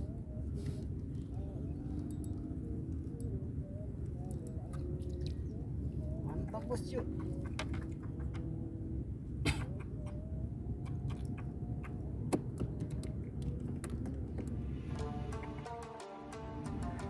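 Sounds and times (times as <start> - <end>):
wind rumbling on microphone: 0.0 - 15.7
music: 14.7 - 17.0.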